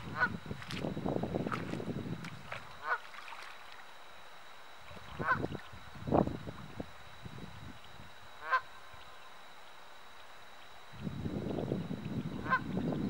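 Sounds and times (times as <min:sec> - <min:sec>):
geese honking: 0:00.0 - 0:00.4, 0:02.6 - 0:03.2, 0:04.9 - 0:05.6, 0:08.4 - 0:09.3, 0:12.3 - 0:12.8.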